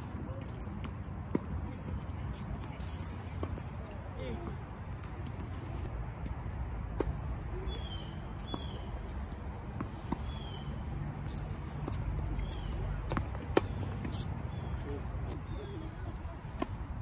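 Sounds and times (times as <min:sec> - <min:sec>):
tennis ball hits: 0:11.4 - 0:14.2.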